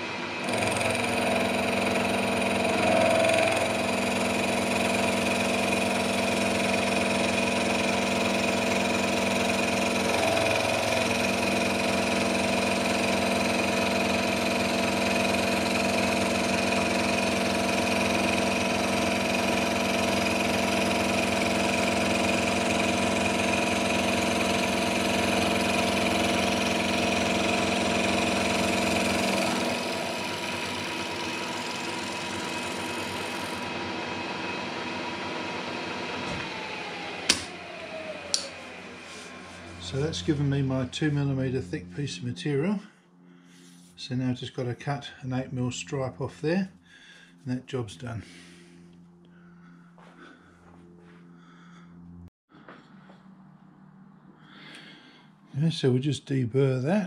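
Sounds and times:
milling machine whine: 0:00.0 - 0:43.0.

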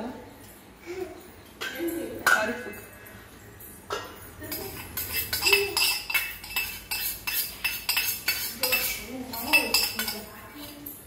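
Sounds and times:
ladle clinking against metal bowls: 0:03.7 - 0:11.0.

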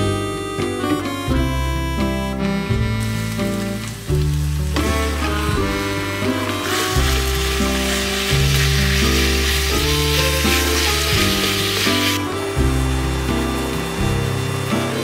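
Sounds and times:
background music with low notes: 0:00.0 - 0:15.0
meat and onions sizzling in a pan: 0:03.0 - 0:15.0
spatula stirring meat: 0:05.5 - 0:12.2.

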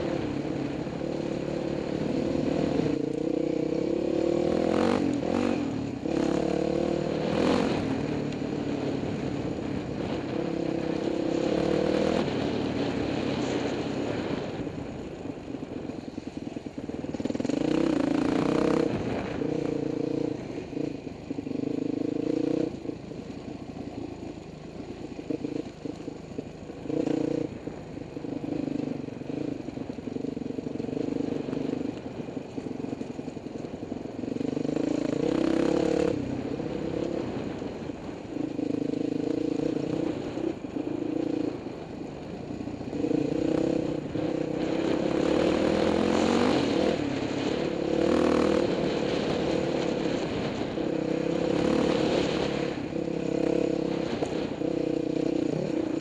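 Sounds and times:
dirt bike engine revving: 0:00.0 - 0:14.6, 0:17.1 - 0:22.9, 0:26.8 - 0:27.6, 0:34.3 - 0:56.0.

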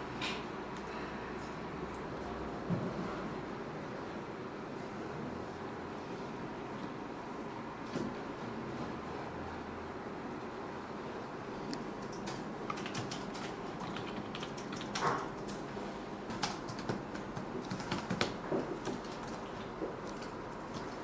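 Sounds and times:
room noise: 0:00.0 - 0:21.0
keyboard typing clicks: 0:11.7 - 0:15.6.

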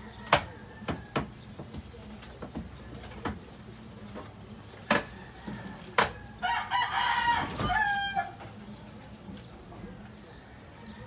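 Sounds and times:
rooster crowing: 0:06.4 - 0:08.4.

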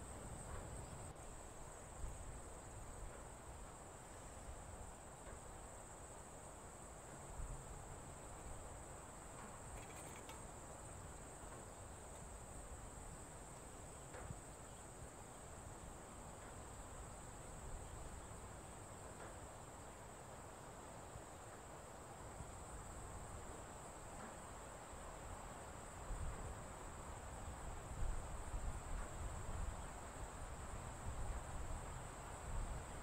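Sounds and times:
insects chirring: 0:00.0 - 0:20.1.

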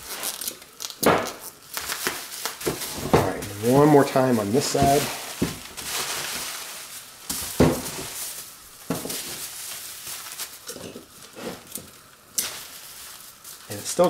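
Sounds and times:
bubble wrap crinkling: 0:00.0 - 0:14.0.

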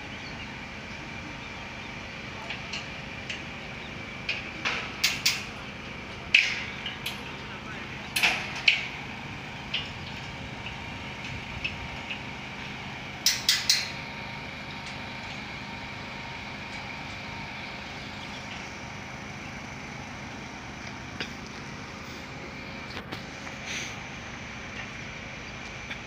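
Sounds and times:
metal clanking on steel fence: 0:04.2 - 0:07.4, 0:08.1 - 0:09.0, 0:13.2 - 0:14.0.

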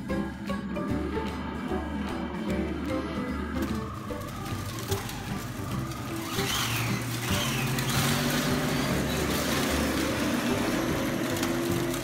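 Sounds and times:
background music: 0:00.0 - 0:12.0
toy car electric motors: 0:02.6 - 0:12.0.

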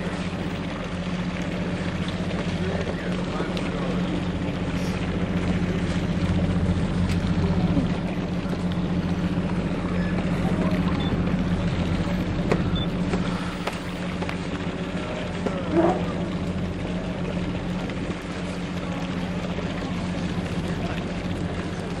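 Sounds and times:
boat engine droning: 0:00.0 - 0:22.0
wind and water hiss: 0:00.0 - 0:22.0.

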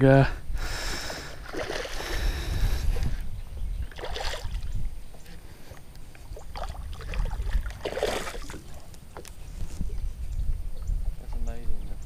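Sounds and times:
wind buffeting microphone: 0:00.0 - 0:12.0
water splashing: 0:01.2 - 0:02.7, 0:03.9 - 0:09.4.

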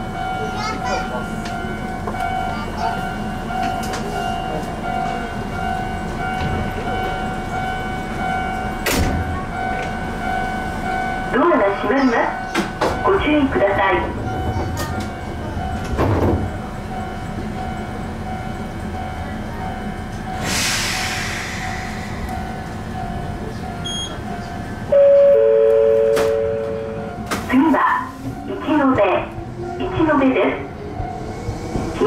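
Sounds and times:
electric train humming: 0:00.0 - 0:32.0
air brakes hissing: 0:20.4 - 0:22.8.

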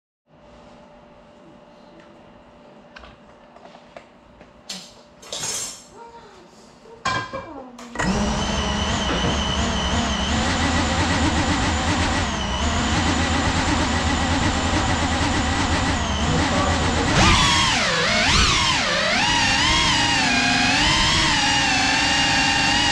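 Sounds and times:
drone motors whining: 0:08.0 - 0:22.9.

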